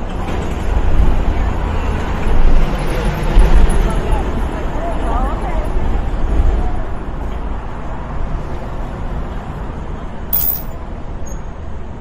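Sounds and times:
low rumble of road traffic: 0:00.0 - 0:12.0
short sharp high click: 0:10.4 - 0:10.7.

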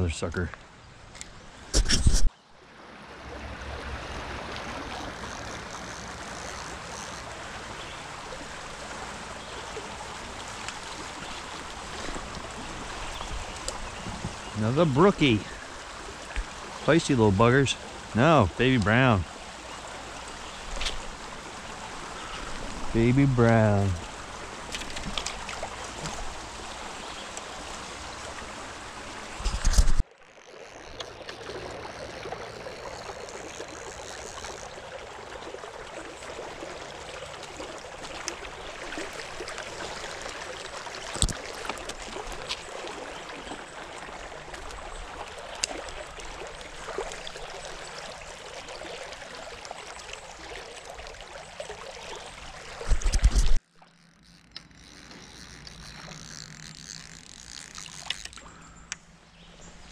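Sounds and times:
stream running over gravel: 0:02.8 - 0:58.7.

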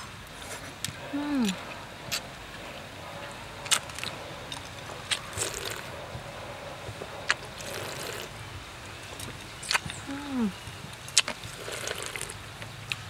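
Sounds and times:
person slurping liquid: 0:05.1 - 0:05.9, 0:07.3 - 0:08.3, 0:11.5 - 0:12.4.

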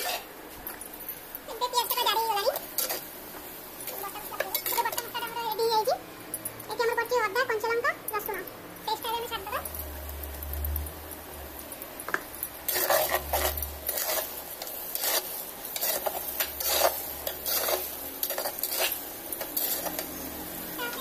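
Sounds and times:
metal spatula scraping a pot: 0:00.0 - 0:00.3, 0:01.9 - 0:03.1, 0:12.7 - 0:20.4
onions sizzling in oil: 0:00.0 - 0:21.0.

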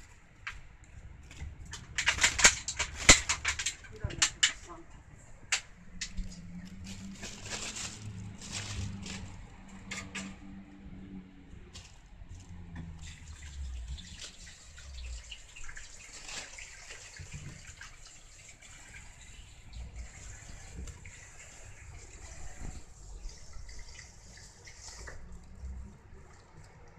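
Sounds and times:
plastic bag crinkling: 0:06.2 - 0:09.6, 0:16.1 - 0:16.9.

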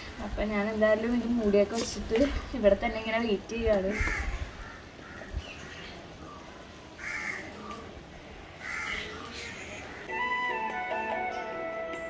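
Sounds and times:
crow cawing: 0:03.9 - 0:05.8, 0:07.0 - 0:07.6, 0:08.6 - 0:10.1.

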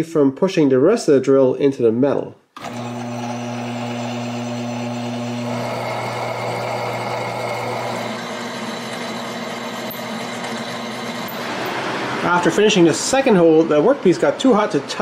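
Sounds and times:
drill cutting into metal: 0:02.6 - 0:11.8
milling machine spindle hum: 0:02.6 - 0:12.2.

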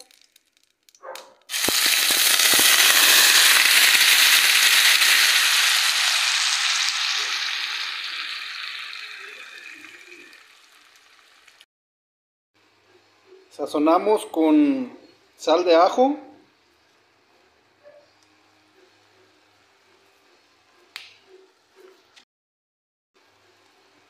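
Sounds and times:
pasta sizzling in butter: 0:01.5 - 0:11.7.

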